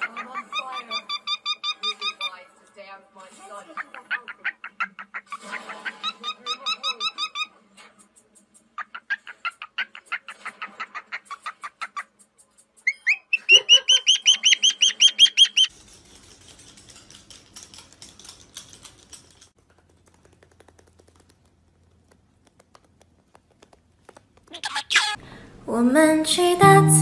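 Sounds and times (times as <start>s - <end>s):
parrot chirping: 0.0s - 2.5s, 3.6s - 7.7s, 8.6s - 15.7s, 24.5s - 25.2s.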